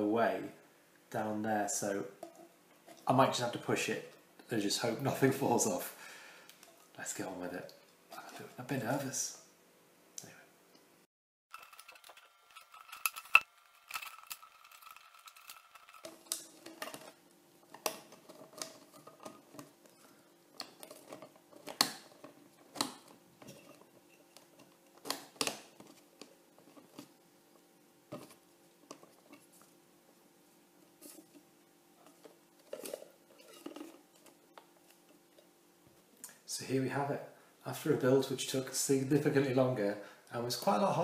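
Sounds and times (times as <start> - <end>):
parts clicking and knocking: 11.5 - 27.1.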